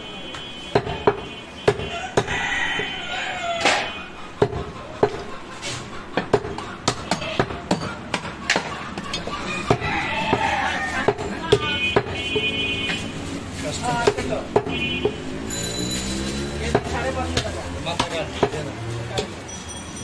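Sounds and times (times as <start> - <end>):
cleaver chopping meat and bone: 0.7 - 2.9, 3.6 - 5.3, 6.2 - 12.5, 13.9 - 15.4, 16.7 - 19.4.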